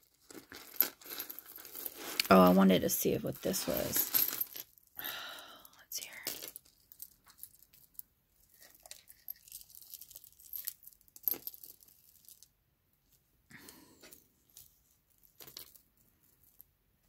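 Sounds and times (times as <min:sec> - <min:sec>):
rustling: 0:00.0 - 0:04.6
jewelry chains jingling: 0:00.2 - 0:04.9, 0:05.8 - 0:12.4.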